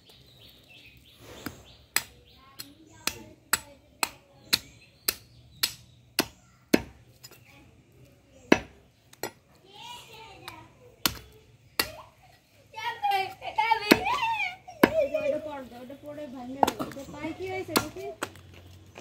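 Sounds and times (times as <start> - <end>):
cleaver chopping on wooden block: 1.9 - 7.0, 8.5 - 9.4.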